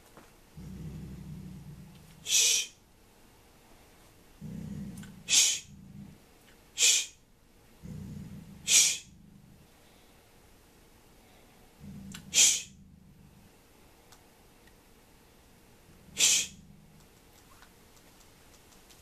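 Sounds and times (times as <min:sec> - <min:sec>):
dog growling low: 0:00.6 - 0:02.4, 0:04.3 - 0:06.3, 0:07.8 - 0:09.9, 0:11.6 - 0:13.6, 0:15.8 - 0:17.1
person hissing: 0:02.2 - 0:02.8, 0:05.3 - 0:05.7, 0:06.8 - 0:07.2, 0:08.6 - 0:09.1, 0:12.2 - 0:12.8, 0:16.2 - 0:16.6.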